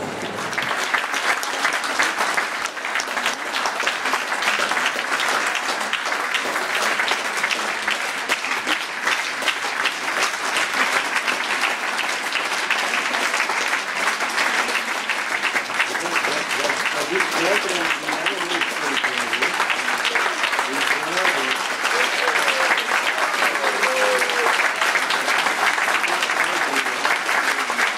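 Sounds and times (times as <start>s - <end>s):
audience applauding: 0.0s - 27.9s.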